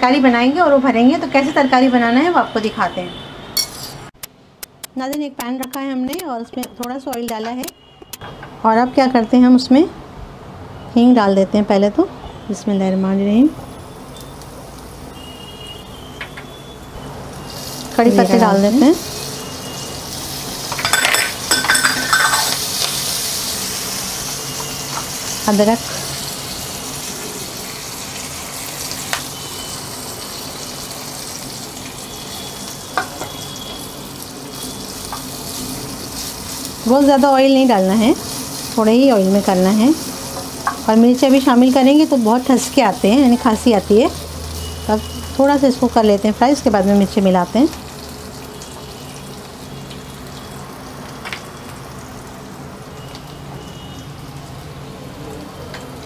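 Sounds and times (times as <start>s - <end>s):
sharp clicks: 4.2s - 8.2s
hot oil sizzling in a pan: 13.3s - 56.0s.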